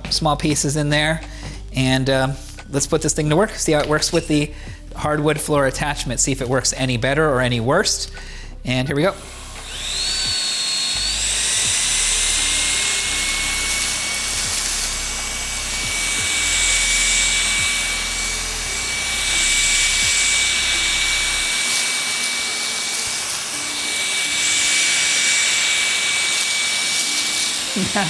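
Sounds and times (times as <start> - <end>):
vacuum cleaner running: 8.8 - 28.0.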